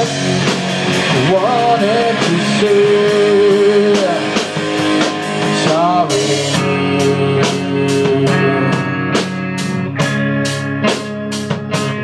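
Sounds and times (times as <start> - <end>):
person singing: 0.0 - 9.4
bass guitar: 0.0 - 12.0
drum beat: 0.0 - 12.0
electric guitar chords: 0.0 - 12.0.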